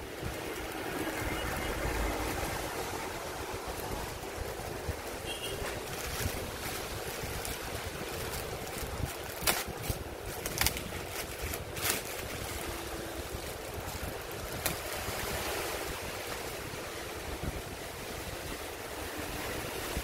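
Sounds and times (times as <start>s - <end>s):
plastic wrapping crinkling: 5.5s - 15.0s.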